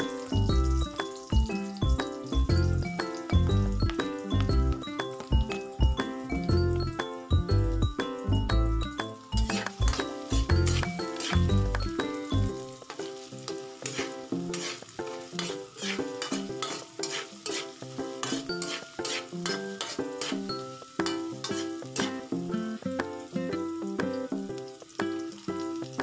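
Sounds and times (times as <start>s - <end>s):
background music: 0.0s - 26.0s
garlic and onion sizzling in oil: 0.0s - 26.0s
metal spatula scraping wok: 9.4s - 22.3s.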